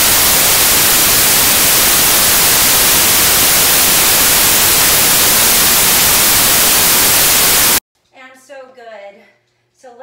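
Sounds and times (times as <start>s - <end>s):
loud static hiss: 0.0s - 7.8s.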